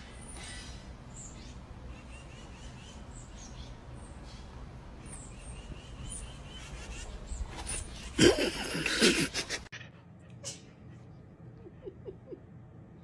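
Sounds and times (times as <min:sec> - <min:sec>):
small birds chirping: 0:00.0 - 0:08.9
low steady rumble: 0:00.0 - 0:13.0.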